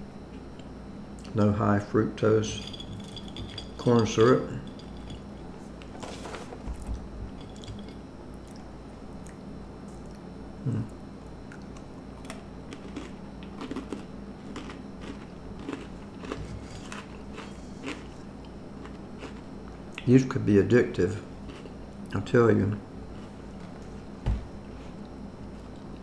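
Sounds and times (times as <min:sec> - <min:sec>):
chewing crunchy crackers: 0:07.5 - 0:20.2, 0:21.3 - 0:22.2.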